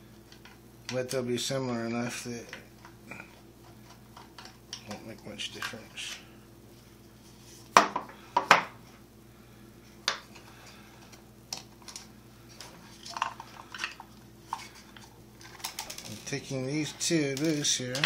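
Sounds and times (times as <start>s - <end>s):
steady low hum: 0.0s - 18.0s
clicks and knocks of handled parts: 11.1s - 16.4s, 17.3s - 18.0s.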